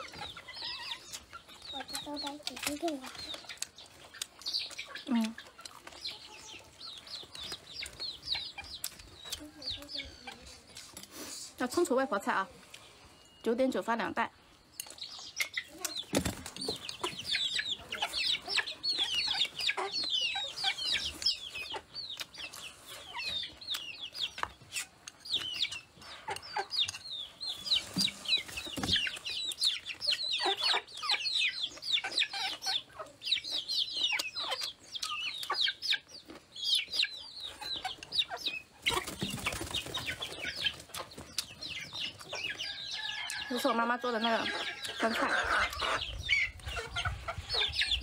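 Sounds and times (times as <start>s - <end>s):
chickens cheeping and clucking: 0.0s - 48.0s
chewing clicks: 1.0s - 6.2s, 34.0s - 36.4s, 40.9s - 41.6s.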